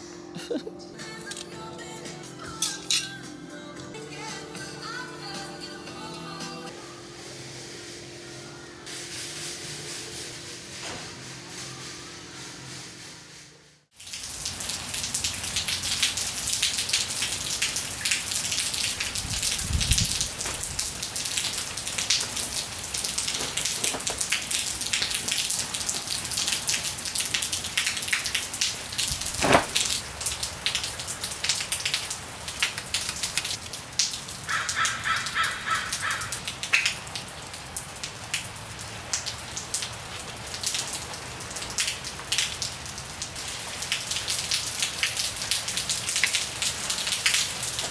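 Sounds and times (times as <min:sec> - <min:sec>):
rain falling: 0:13.9 - 0:47.9.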